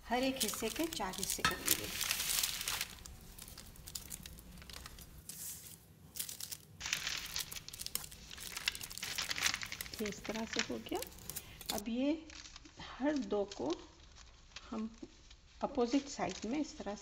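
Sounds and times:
parchment paper rustling: 0:00.0 - 0:17.0.

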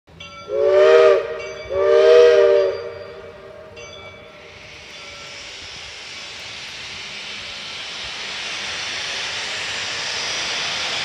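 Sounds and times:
steam locomotive chime whistle: 0:00.1 - 0:06.0
steady steam hiss: 0:00.4 - 0:11.0.

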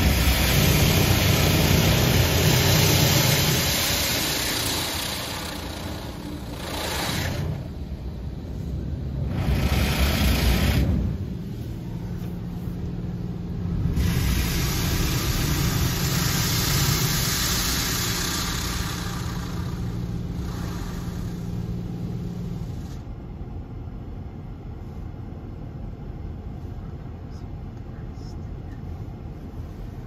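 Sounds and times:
car wash motor hum: 0:00.0 - 0:30.0
low rumble: 0:00.0 - 0:30.0
water spray hissing on car: 0:14.0 - 0:22.8.

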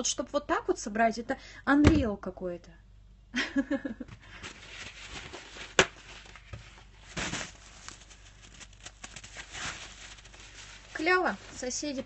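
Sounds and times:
crinkly rustle: 0:04.3 - 0:12.0.

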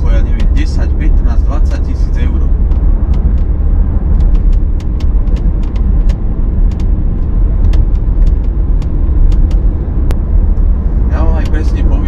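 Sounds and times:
car interior trim creaking and ticking: 0:00.0 - 0:12.0
road and tyre rumble: 0:00.0 - 0:12.0.

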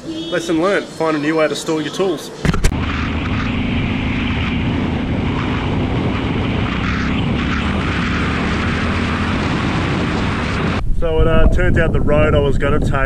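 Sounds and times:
wind rushing over microphone: 0:02.4 - 0:13.0
motorcycle engine running: 0:02.7 - 0:10.8.

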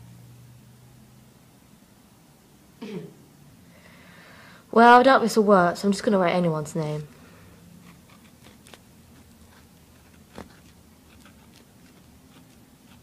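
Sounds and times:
pen scratching on paper: 0:07.8 - 0:13.0.

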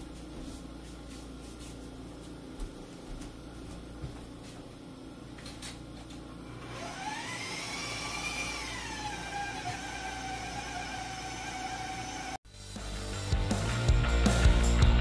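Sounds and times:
electric stand mixer motor whining: 0:06.5 - 0:12.4.

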